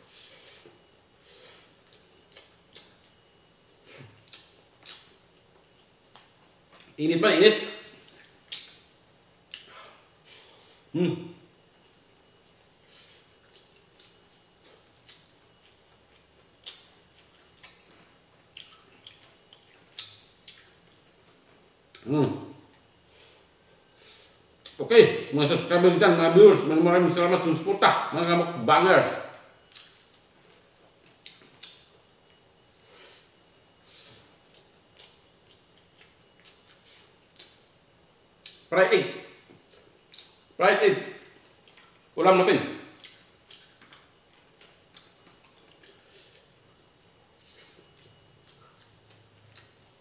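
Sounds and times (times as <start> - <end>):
wet chewing smacks: 1.8 - 7.0, 7.8 - 8.9, 11.4 - 22.1, 29.6 - 30.3, 31.0 - 32.8, 34.4 - 38.7, 39.5 - 40.5, 41.4 - 42.1, 43.0 - 50.0.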